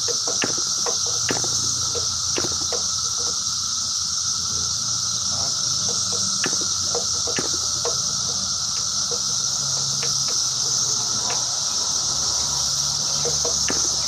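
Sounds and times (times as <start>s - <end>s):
steady high-pitched hiss: 0.0s - 14.0s
engine turned over clicking: 5.8s - 14.0s.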